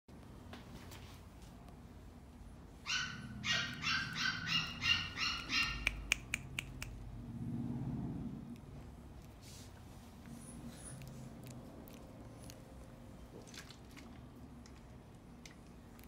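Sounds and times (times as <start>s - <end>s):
puppy yapping: 2.8s - 7.0s
sharp clicks: 5.8s - 7.0s.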